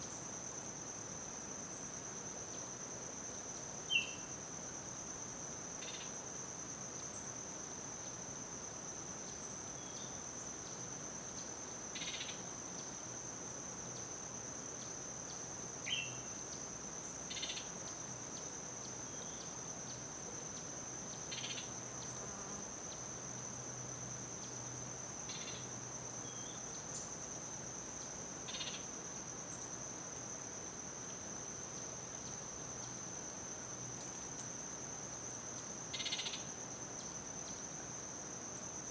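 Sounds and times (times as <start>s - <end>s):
short insect chirps: 3.5s - 4.4s, 5.8s - 6.2s, 9.2s - 13.1s, 13.9s - 29.8s, 31.1s - 37.9s
high-pitched insect drone: 11.4s - 12.8s, 14.8s - 23.5s, 24.4s - 27.2s, 27.9s - 29.7s, 35.2s - 37.7s.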